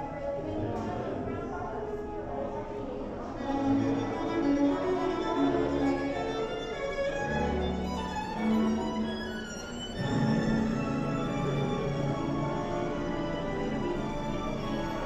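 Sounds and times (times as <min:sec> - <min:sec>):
string music with violin: 0:03.4 - 0:15.0.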